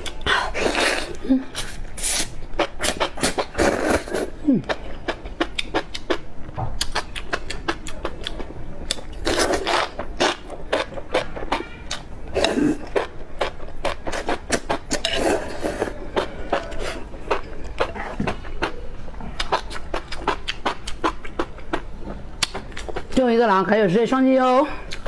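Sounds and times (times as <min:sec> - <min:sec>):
chewing mouth sounds: 0:00.0 - 0:06.2, 0:06.8 - 0:23.2
slurping: 0:00.3 - 0:04.4, 0:09.1 - 0:11.6.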